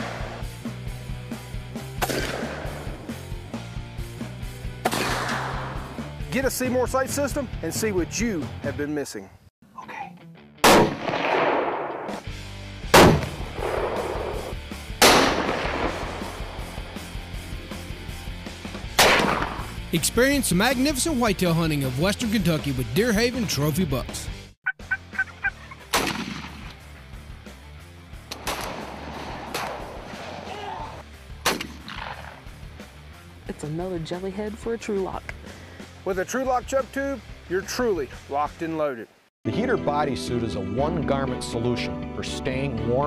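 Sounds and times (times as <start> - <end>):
background music: 0.0 - 9.0, 9.6 - 43.0
shotgun shots with echo: 2.0 - 3.0, 4.8 - 5.7, 10.6 - 12.2, 12.9 - 14.4, 15.0 - 16.4, 19.0 - 19.7, 25.9 - 26.7, 28.4 - 30.5, 31.4 - 32.5.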